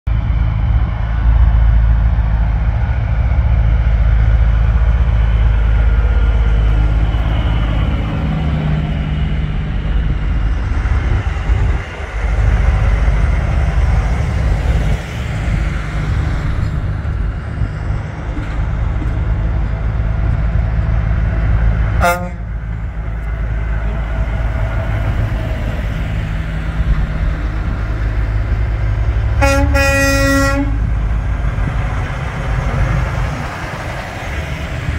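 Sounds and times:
diesel truck engines rumbling: 0:00.1 - 0:34.9
short truck horn toot: 0:29.4 - 0:30.8.

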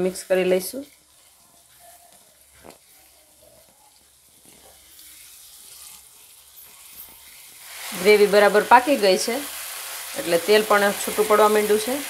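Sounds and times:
gravy sizzling in a pan: 0:00.0 - 0:12.0
spatula scraping a pan: 0:00.3 - 0:08.4.

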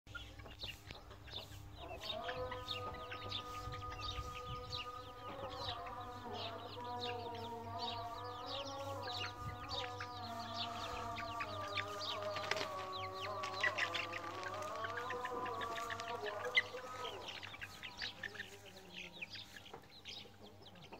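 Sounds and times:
chicks peeping and clucking: 0:00.1 - 0:20.9.

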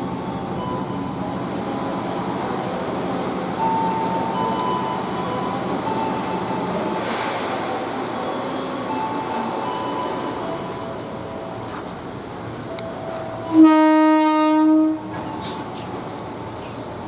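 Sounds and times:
electric train humming: 0:00.0 - 0:17.0
heavy rain hissing: 0:06.8 - 0:11.3.

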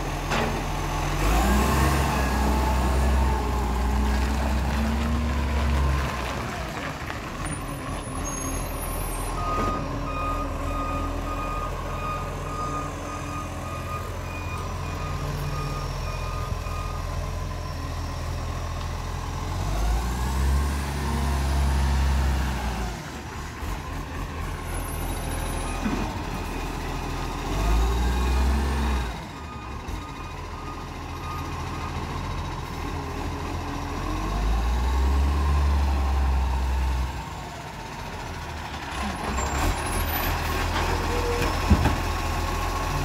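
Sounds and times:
reversing alarm beeping: 0:09.3 - 0:18.0.

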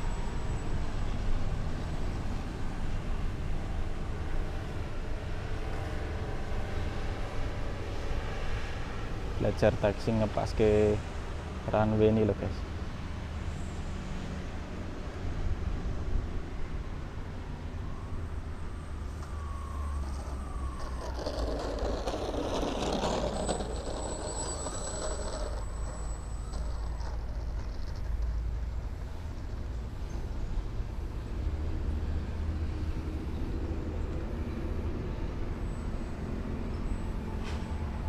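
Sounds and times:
thin high whine: 0:18.9 - 0:27.2.

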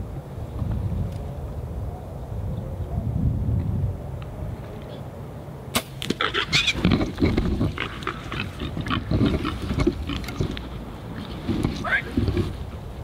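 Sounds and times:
rustling through dry brush: 0:05.8 - 0:13.0
hogs grunting: 0:06.2 - 0:10.9.

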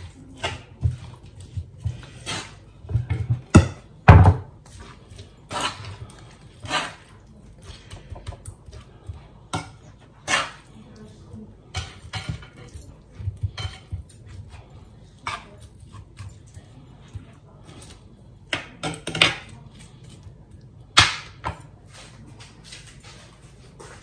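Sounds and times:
metal spoon scraping a dish: 0:00.0 - 0:03.4, 0:04.7 - 0:12.7, 0:13.4 - 0:18.1.

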